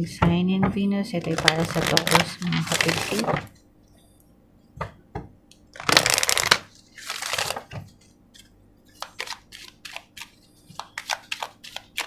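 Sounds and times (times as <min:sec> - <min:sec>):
cards clicking: 0:09.0 - 0:12.0.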